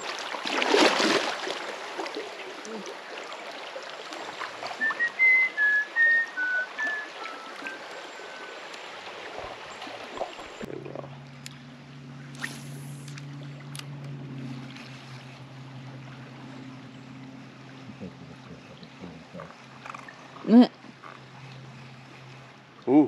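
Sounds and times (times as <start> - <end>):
river water flowing: 0.0 - 23.0
whistled notes: 4.8 - 8.6.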